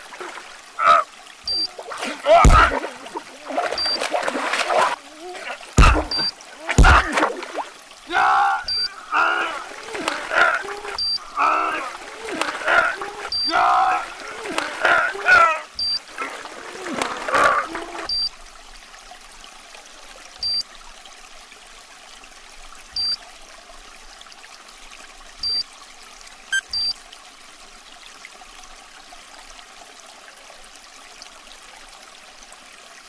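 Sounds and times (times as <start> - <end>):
stream water trickling: 0.0 - 33.0
man's strained voice: 0.8 - 3.6, 4.7 - 7.4, 8.0 - 18.1
short high electronic beeps: 3.8 - 4.0, 11.0 - 11.2, 15.8 - 16.0, 18.1 - 18.3, 20.4 - 20.6, 23.0 - 23.2, 26.6 - 26.9.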